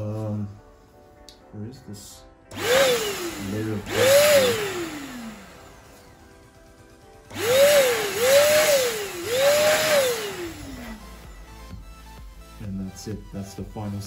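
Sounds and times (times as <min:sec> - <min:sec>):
electric duster motor whining: 0:02.5 - 0:11.8.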